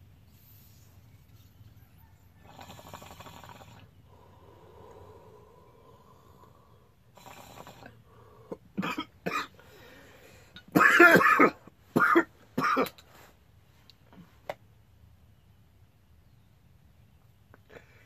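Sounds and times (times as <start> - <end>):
man coughing hard: 8.8 - 9.6, 10.7 - 13.0.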